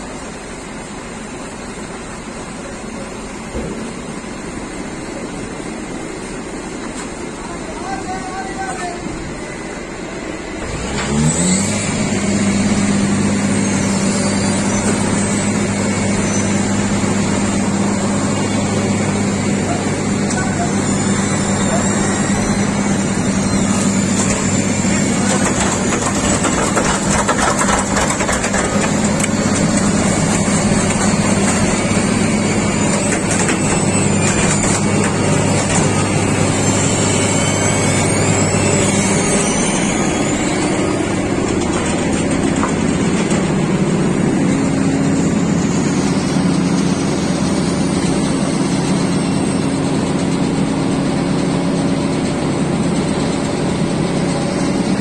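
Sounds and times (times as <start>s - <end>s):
paver diesel engine running: 0.0s - 55.0s.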